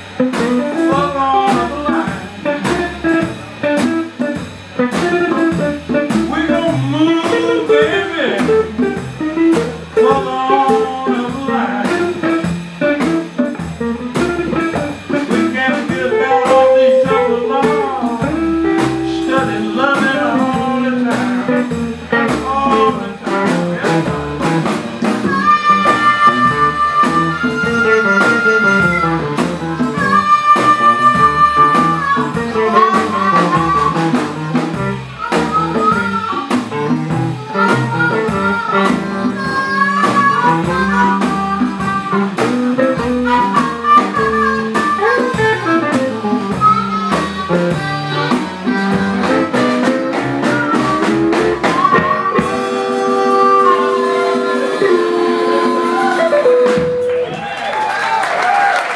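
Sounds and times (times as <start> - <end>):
blues band playing: 0.0 - 58.9
amplified harmonica: 12.8 - 22.2, 25.0 - 34.5, 35.1 - 57.5.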